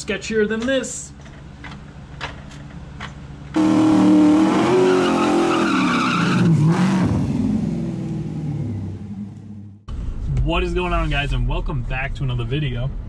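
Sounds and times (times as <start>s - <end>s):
tires spinning and squealing: 3.6s - 7.3s
engine revving high: 3.6s - 9.8s.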